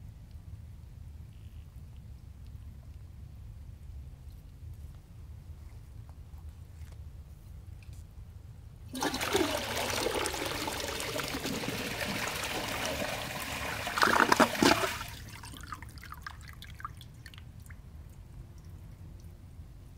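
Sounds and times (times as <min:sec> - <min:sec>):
toilet flushing: 0:08.9 - 0:15.9
water trickling and dripping: 0:14.1 - 0:19.4.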